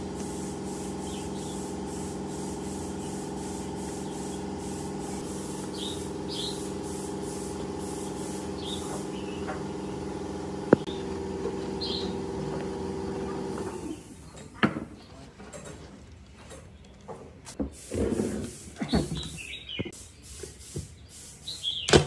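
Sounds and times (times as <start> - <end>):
mechanical motor hum: 0.0 - 14.2.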